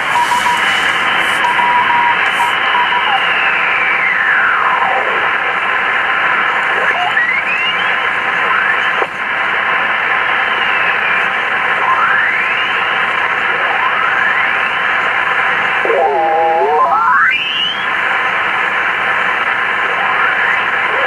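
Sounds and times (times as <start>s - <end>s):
radio signal whistles gliding: 0.0s - 5.4s, 6.7s - 9.1s, 10.2s - 17.9s
radio band noise hiss: 0.0s - 21.0s.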